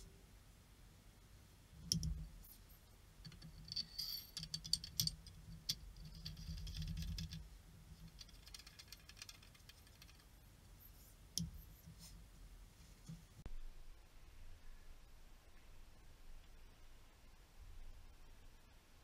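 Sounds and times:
metal parts clicking and rattling: 3.2s - 7.4s, 8.0s - 10.3s.

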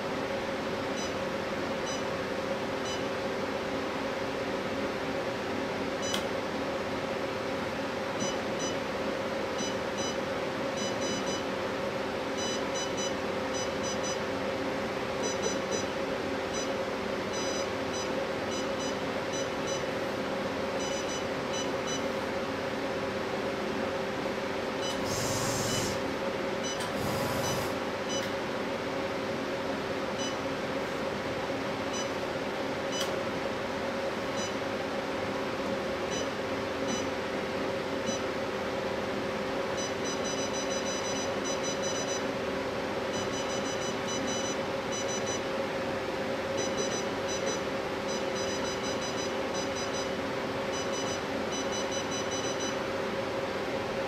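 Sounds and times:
machine humming: 24.8s - 28.3s.

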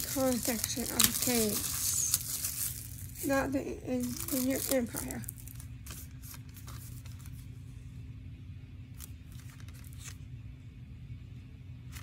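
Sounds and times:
plastic case rustling: 0.0s - 3.4s, 4.0s - 7.4s
low hum: 0.0s - 12.0s.

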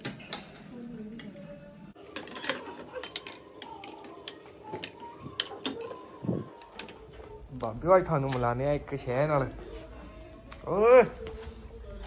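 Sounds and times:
metal spoon clinking on plate: 2.1s - 6.0s.

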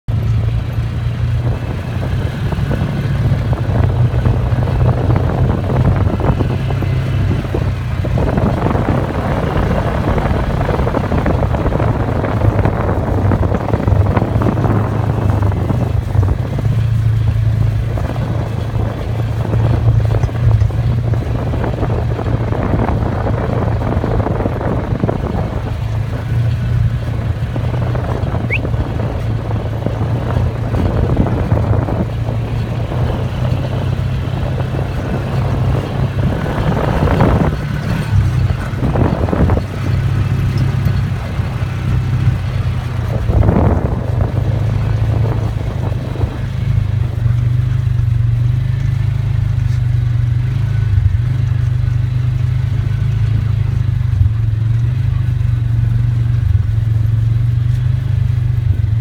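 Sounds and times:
rough wind noise: 0.1s - 59.0s
small engine humming: 0.2s - 49.8s.

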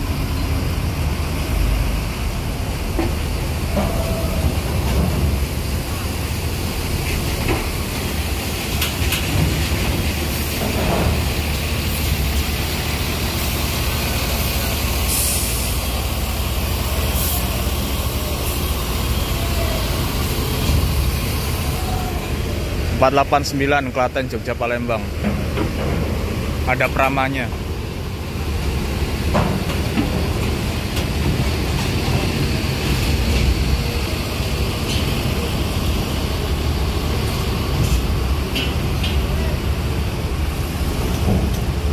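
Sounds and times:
bus engine rumble: 0.0s - 41.9s
air brake hisses: 15.0s - 15.8s, 17.0s - 17.7s.

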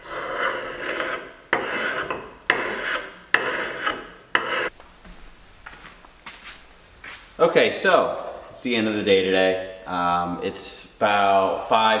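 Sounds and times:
gasket scraper rasping on metal: 0.0s - 4.7s.

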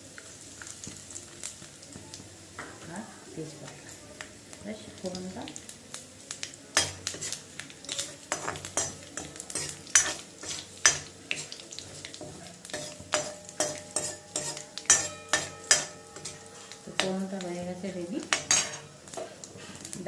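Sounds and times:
spices sizzling in oil: 0.0s - 20.0s
metal ladle scraping pan: 6.8s - 11.6s, 12.2s - 17.1s, 18.3s - 19.8s.

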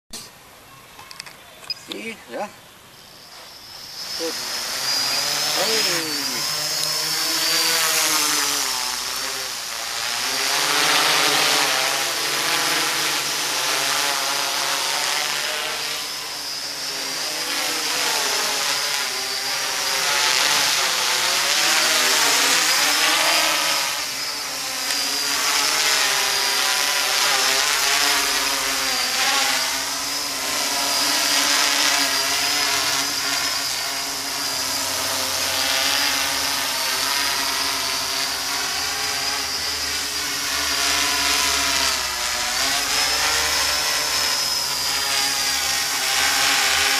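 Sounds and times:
quadcopter propellers buzzing: 1.2s - 46.9s
high thin whine: 1.6s - 46.9s.

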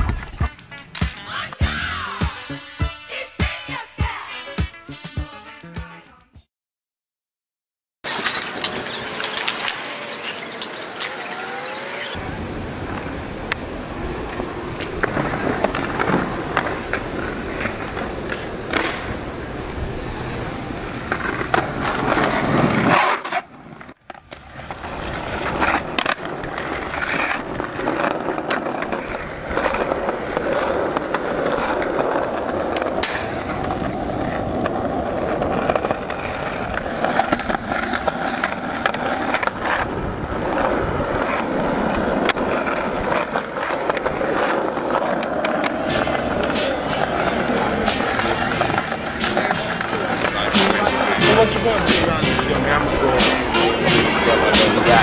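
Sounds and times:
skateboard clacks: 0.0s - 1.7s, 8.1s - 12.2s, 12.8s - 55.0s
skateboard wheels rolling on asphalt: 0.0s - 4.5s, 8.0s - 55.0s.

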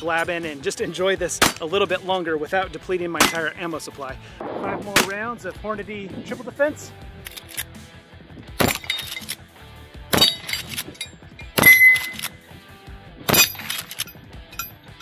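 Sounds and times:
gunshots: 3.2s - 3.6s, 4.4s - 5.3s
steel targets clanging: 3.2s - 3.7s, 8.6s - 9.4s, 10.2s - 12.4s, 13.3s - 14.8s
rifle lever clicking: 7.2s - 7.7s, 11.6s - 12.4s.

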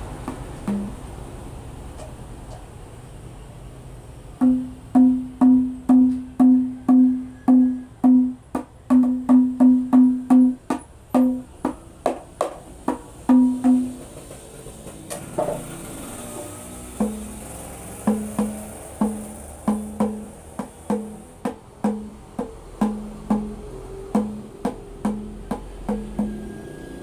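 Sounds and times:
frame drum played by hand: 0.2s - 1.0s, 4.4s - 26.9s
drum being handled knocks: 0.3s - 1.0s.

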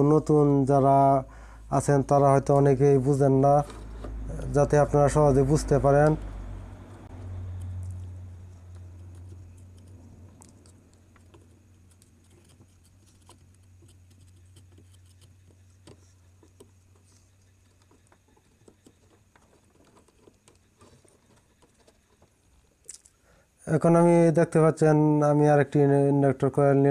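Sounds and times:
low hum: 0.0s - 18.1s.

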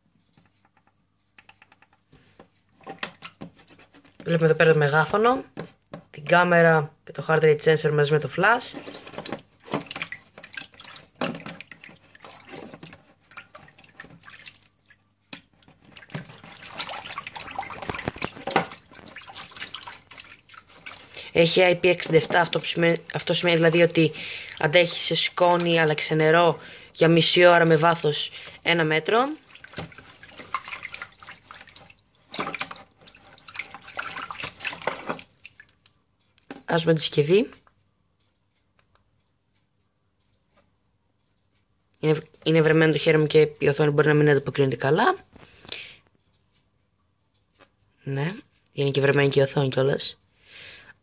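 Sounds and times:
water sloshing in a sink: 1.5s - 6.2s, 7.2s - 37.7s.

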